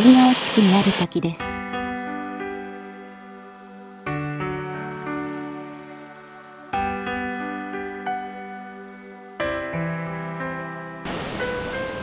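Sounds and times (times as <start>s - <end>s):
gentle instrumental music: 0.0s - 12.0s.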